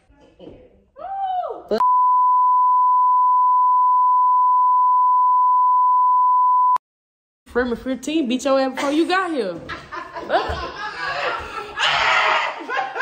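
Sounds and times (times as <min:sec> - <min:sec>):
high-pitched censor bleep: 0:01.8 - 0:06.8.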